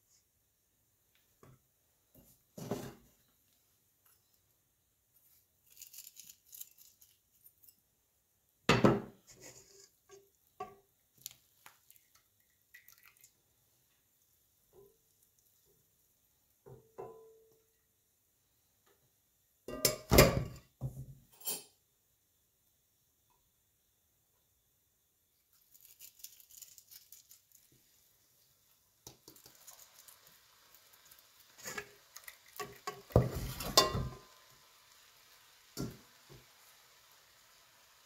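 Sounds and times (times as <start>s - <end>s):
utensils knocking on pan: 32.6s - 34.3s.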